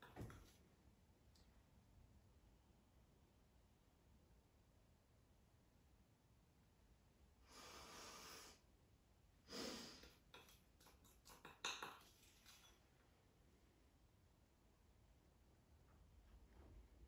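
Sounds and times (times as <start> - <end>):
metal spoon tapping bowl: 10.3 - 12.8.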